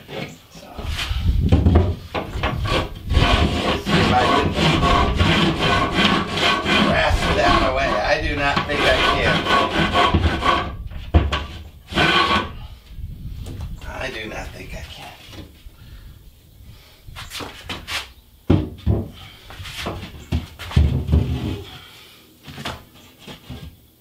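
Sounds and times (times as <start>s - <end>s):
cement board scraping: 0.0s - 12.6s, 17.2s - 21.7s, 22.4s - 23.8s.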